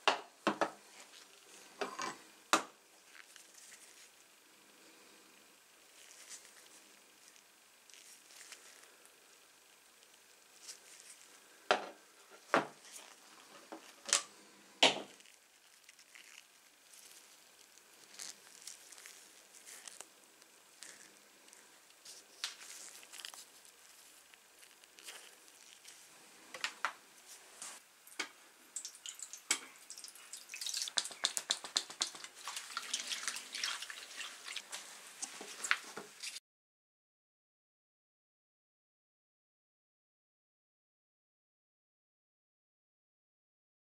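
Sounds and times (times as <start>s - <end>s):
dense crackle: 15.2s - 26.1s
liquid pouring into water: 28.7s - 34.7s
sharp taps and clicks: 30.9s - 32.3s.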